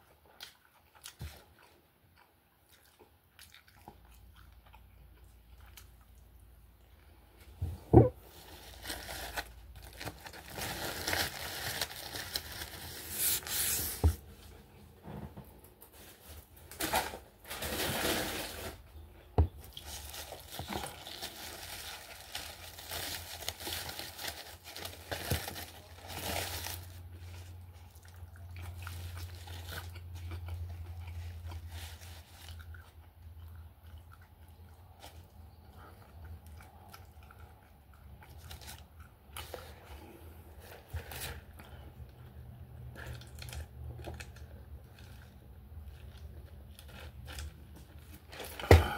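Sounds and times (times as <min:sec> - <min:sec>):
foil wrappers crinkling: 0:08.3 - 0:14.1, 0:15.9 - 0:18.9, 0:19.8 - 0:27.5.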